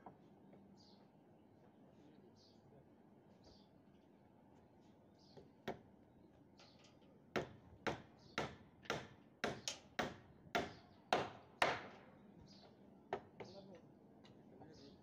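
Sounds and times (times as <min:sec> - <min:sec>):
sharp knocks on timber formwork: 0:05.6 - 0:05.9, 0:07.3 - 0:12.1, 0:13.1 - 0:13.6.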